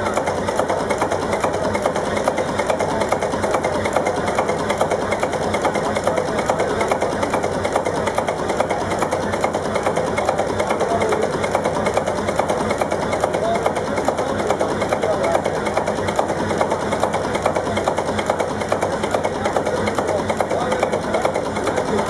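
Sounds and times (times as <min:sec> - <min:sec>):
marine diesel engine knocking: 0:00.0 - 0:22.0.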